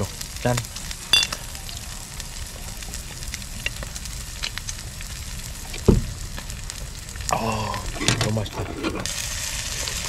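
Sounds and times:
meat sizzling on a grill pan: 0:00.0 - 0:10.0
low thump: 0:05.8 - 0:06.1.

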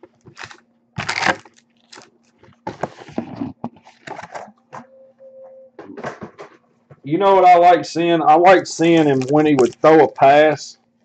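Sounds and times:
card packs tearing and crinkling: 0:00.3 - 0:04.3, 0:08.9 - 0:10.1.

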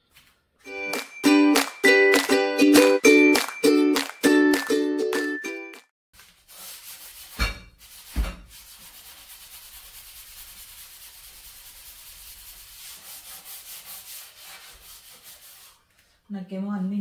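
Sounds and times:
steel scrubber scouring a stove: 0:06.4 - 0:15.8.

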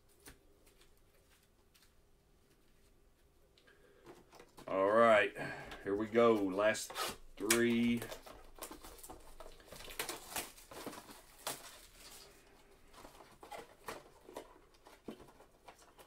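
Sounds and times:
trading cards tapping and rustling: 0:05.7 - 0:16.0.

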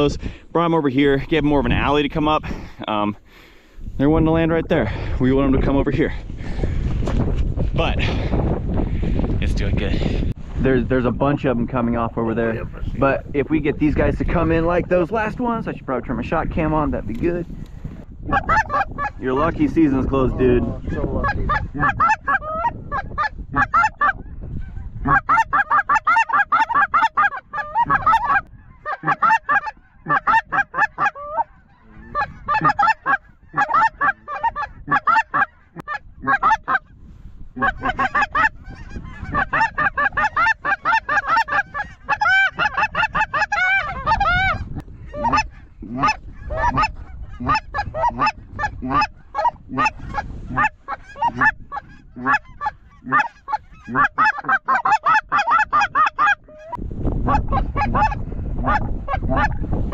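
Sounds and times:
geese honking: 0:18.3 - 0:36.9, 0:37.6 - 0:59.6.

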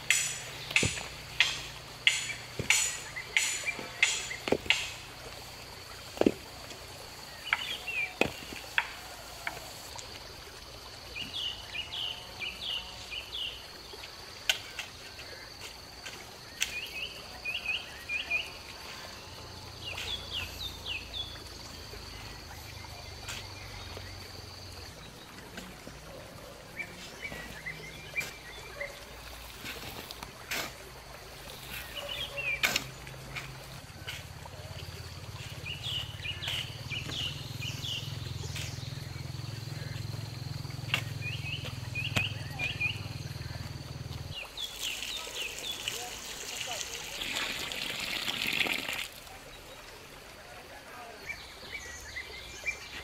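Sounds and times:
tool knocks: 0:00.1 - 0:05.0
bird chirping: 0:35.4 - 0:46.1.

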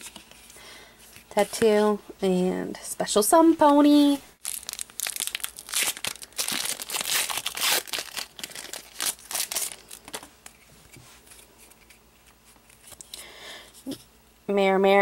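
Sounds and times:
foil wrapper crinkling: 0:04.4 - 0:10.6
cards rustling: 0:04.4 - 0:13.2.

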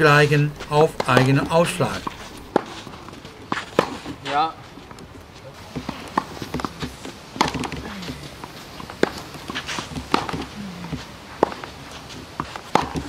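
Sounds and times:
racket hitting tennis ball: 0:00.0 - 0:05.0, 0:05.6 - 0:13.0
shoes scuffing on clay: 0:00.2 - 0:13.0
ball bouncing on clay: 0:05.7 - 0:11.7, 0:12.5 - 0:13.0.

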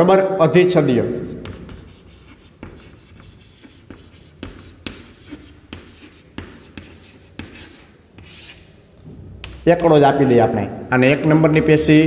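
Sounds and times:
chalk writing on chalkboard: 0:01.2 - 0:08.7, 0:09.4 - 0:10.4.

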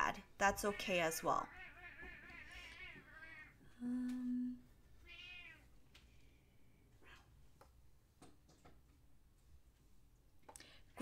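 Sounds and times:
cat meowing: 0:01.5 - 0:03.6, 0:05.0 - 0:05.7.

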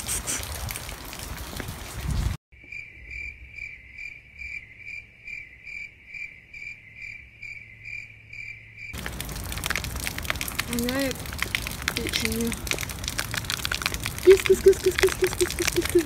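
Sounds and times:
cricket chirping: 0:02.6 - 0:09.0.

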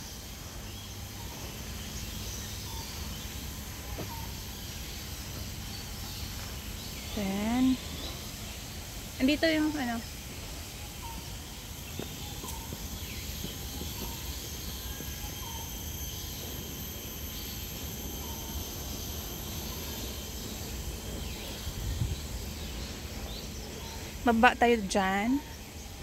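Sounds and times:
high-pitched insect drone: 0:00.0 - 0:26.0.

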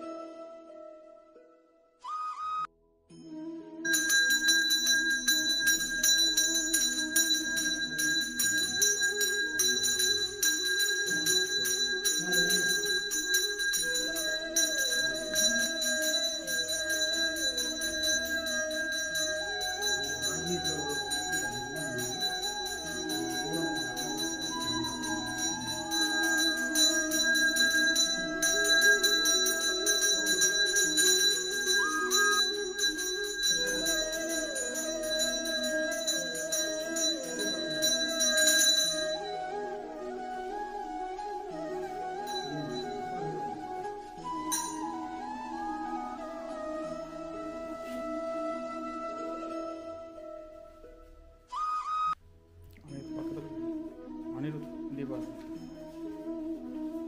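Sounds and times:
melodic music: 0:00.0 - 0:57.0
brass hand bell ringing rapidly: 0:03.9 - 0:39.3.

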